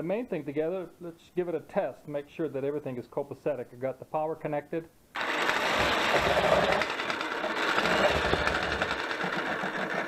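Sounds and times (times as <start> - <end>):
jackhammer running: 5.2 - 10.0.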